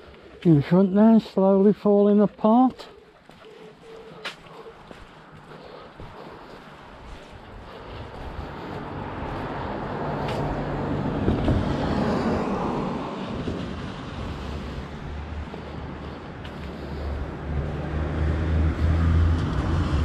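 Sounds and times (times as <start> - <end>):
car passing on wet road: 8.0 - 20.0.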